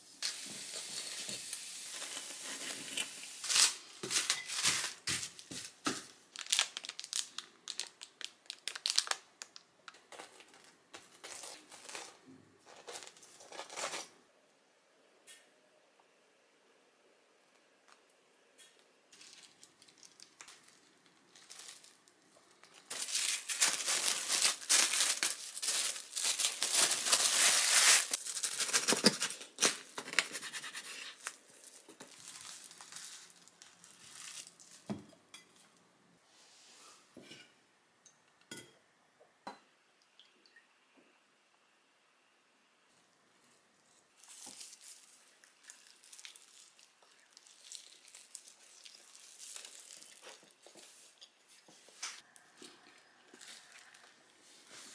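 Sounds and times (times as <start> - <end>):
wrapping sheet rustling: 0.3 - 9.2, 10.1 - 14.1, 19.2 - 34.9, 44.1 - 52.2.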